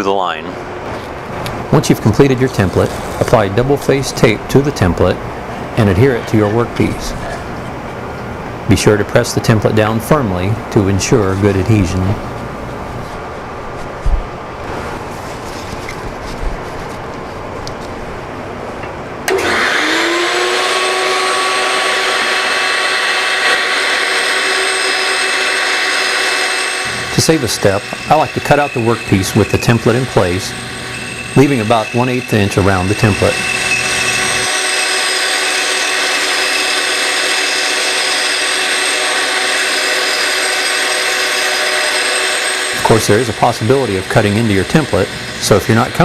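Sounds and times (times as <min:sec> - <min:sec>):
bandsaw cutting wood: 0:19.3 - 0:46.0
woodshop machine motor whining: 0:19.3 - 0:46.0.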